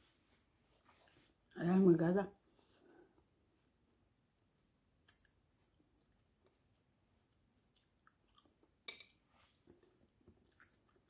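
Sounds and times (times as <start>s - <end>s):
person chewing: 5.0s - 5.4s, 7.6s - 8.8s, 9.5s - 11.0s.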